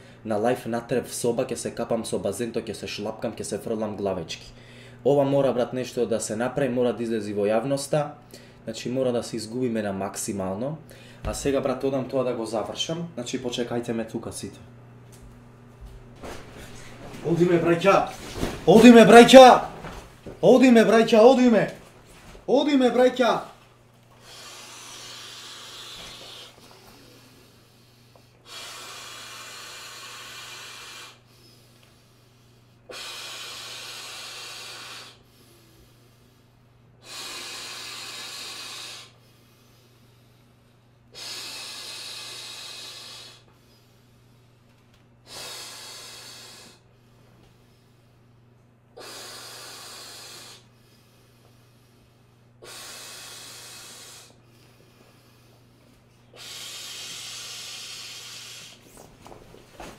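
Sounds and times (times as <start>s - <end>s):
man blowing into inflatable valve: 24.2s - 27.6s, 28.4s - 31.7s, 32.9s - 35.3s, 37.0s - 39.2s, 41.1s - 43.5s, 45.2s - 46.8s, 49.0s - 50.8s, 52.6s - 54.4s, 56.3s - 58.9s.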